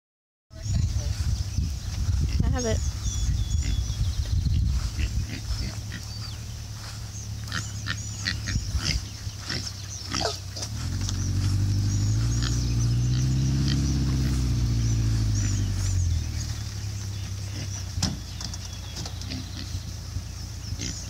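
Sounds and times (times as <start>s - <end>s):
vehicle engine under load: 4.3s - 21.0s
pigs making short sharp calls: 4.8s - 6.3s, 7.4s - 11.0s.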